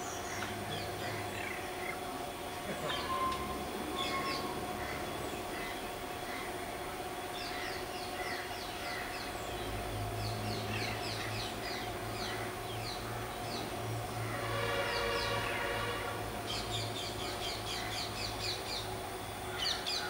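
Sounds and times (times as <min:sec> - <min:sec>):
birds chirping: 0:00.0 - 0:13.8.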